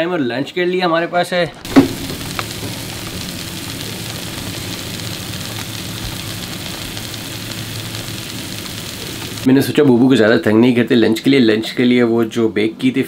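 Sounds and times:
low steady hum: 0:01.6 - 0:09.5
food sizzling on a grill: 0:01.7 - 0:09.5.

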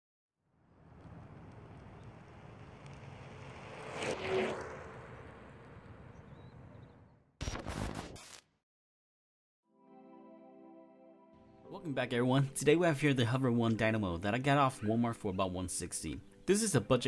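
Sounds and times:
electric scooter rolling on asphalt: 0:00.5 - 0:07.0.

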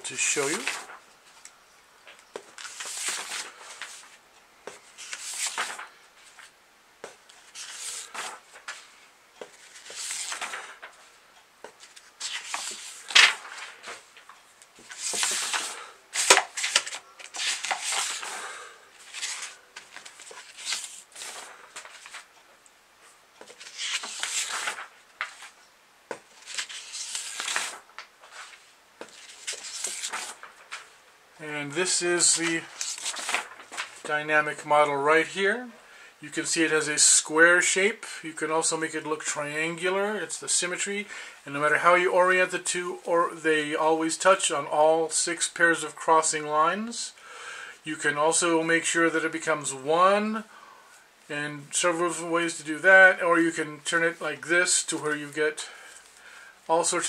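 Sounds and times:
paper pages turning: 0:00.1 - 0:01.5, 0:02.3 - 0:06.5, 0:07.1 - 0:11.0, 0:11.7 - 0:22.3, 0:23.4 - 0:31.0, 0:31.8 - 0:34.1
sharp paper snaps: 0:12.2 - 0:13.8, 0:14.9 - 0:18.3, 0:26.1 - 0:28.1.

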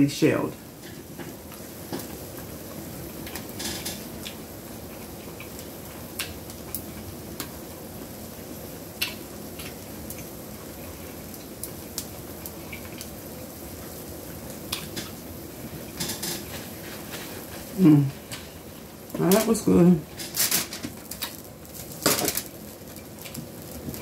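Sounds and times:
person chewing food: 0:04.2 - 0:07.1, 0:12.3 - 0:13.1, 0:14.7 - 0:15.2.

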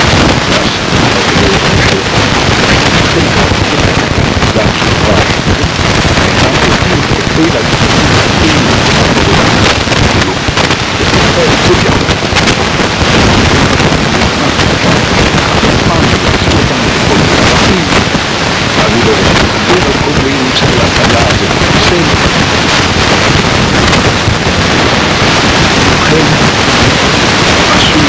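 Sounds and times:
faint voice talking: 0:00.0 - 0:05.5, 0:06.2 - 0:12.2, 0:14.0 - 0:14.8, 0:15.7 - 0:18.1, 0:18.7 - 0:22.4, 0:25.9 - 0:26.5, 0:27.6 - 0:28.0
recording hiss and crackle: 0:00.0 - 0:28.0.

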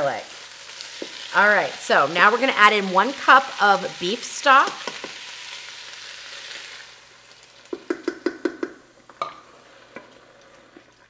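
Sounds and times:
stock sizzling in a pot: 0:00.0 - 0:11.0
wooden spoon knocking in a pot: 0:07.7 - 0:09.4.

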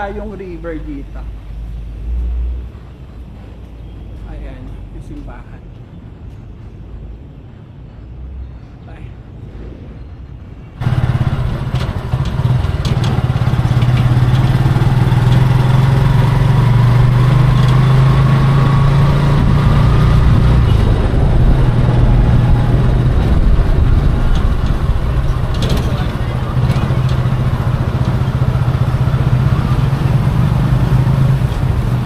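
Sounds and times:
motorcycle engine running: 0:10.8 - 0:32.0.

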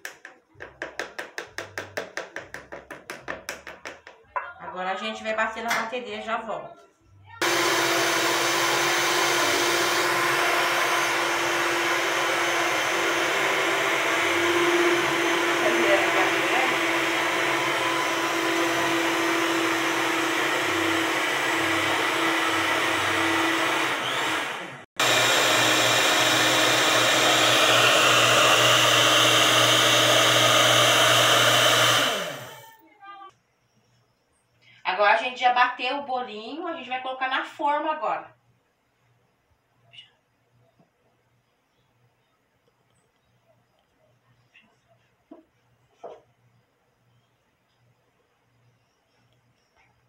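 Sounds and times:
stand mixer whirring: 0:07.4 - 0:32.7.

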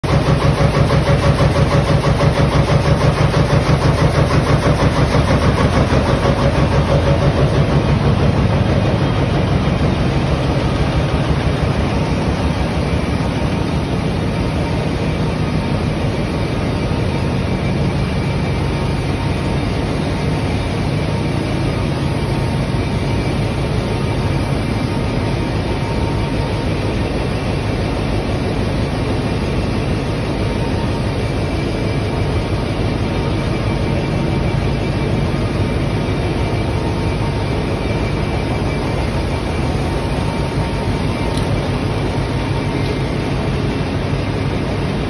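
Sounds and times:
fast mechanical beat: 0:00.0 - 0:14.4
steady machine hum: 0:00.0 - 0:45.0.

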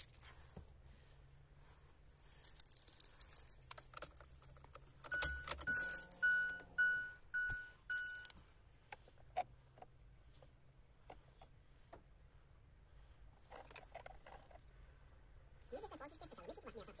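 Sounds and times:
car keys jangling: 0:02.4 - 0:08.3
dashboard warning chime: 0:05.1 - 0:08.4.

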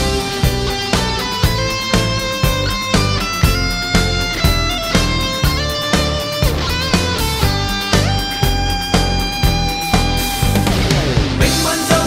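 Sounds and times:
rock music with sliding guitar: 0:00.0 - 0:12.0.

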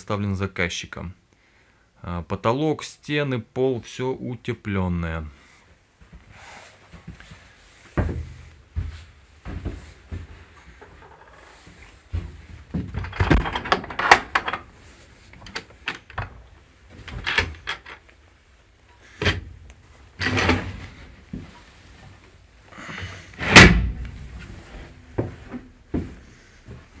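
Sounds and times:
door banging: 0:12.8 - 0:14.7, 0:23.4 - 0:24.4
door bolt knocks and clicks: 0:13.0 - 0:14.7, 0:17.0 - 0:18.0.

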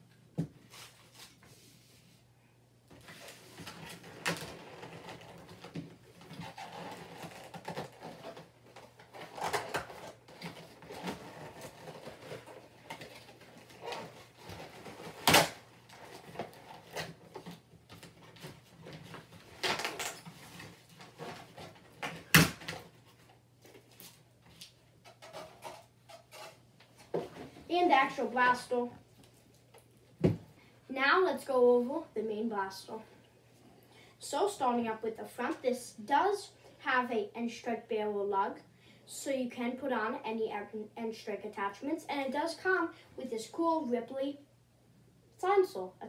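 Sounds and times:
cardboard packaging rustling: 0:03.0 - 0:29.6.

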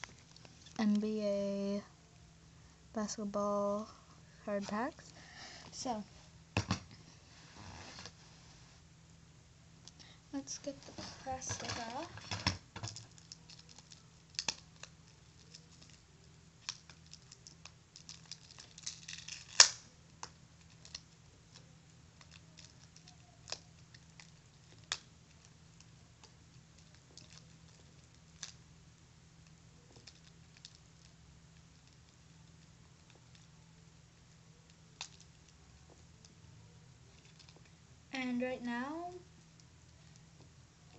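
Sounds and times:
plastic wrap crinkling and clicking: 0:09.8 - 0:28.6, 0:29.4 - 0:33.6, 0:34.5 - 0:36.4, 0:37.1 - 0:37.8.

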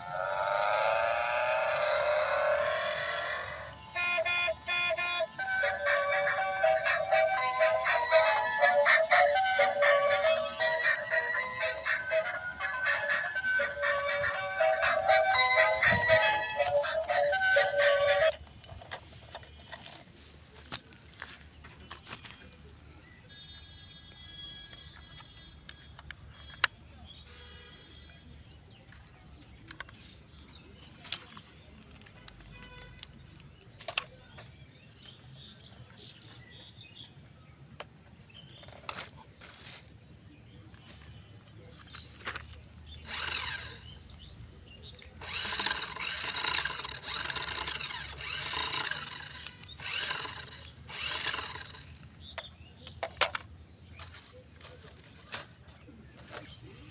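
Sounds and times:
toy car motor whirring: 0:01.2 - 0:20.0, 0:43.0 - 0:43.9, 0:45.2 - 0:52.0
plastic toy truck clicks: 0:31.0 - 0:34.5, 0:43.1 - 0:43.8, 0:45.0 - 0:55.6.

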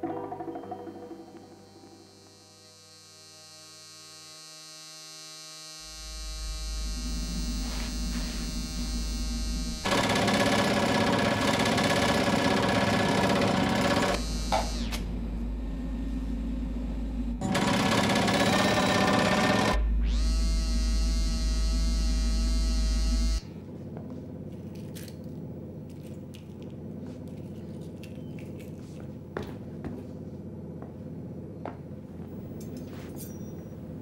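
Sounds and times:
low electrical hum: 0:00.1 - 0:09.9, 0:14.1 - 0:17.5, 0:19.8 - 0:34.0
vibration machine buzzing rattle: 0:01.4 - 0:23.5.

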